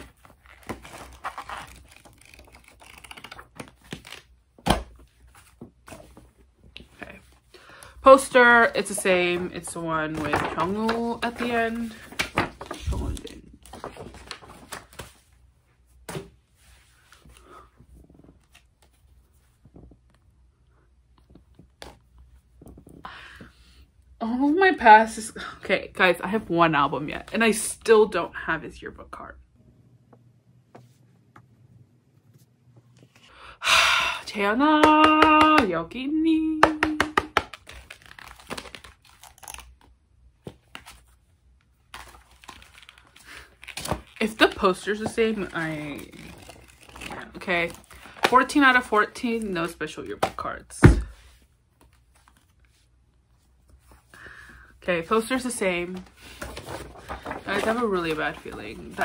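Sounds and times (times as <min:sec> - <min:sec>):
paper packaging rustling: 0:00.0 - 0:07.0, 0:08.2 - 0:15.4, 0:37.4 - 0:39.9, 0:41.8 - 0:48.9, 0:55.2 - 0:59.0.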